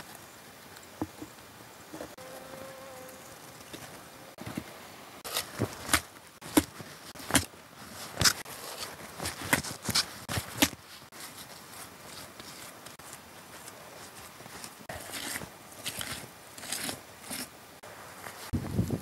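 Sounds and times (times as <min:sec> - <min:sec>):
wet mud scraping and squelching: 0:05.2 - 0:17.6.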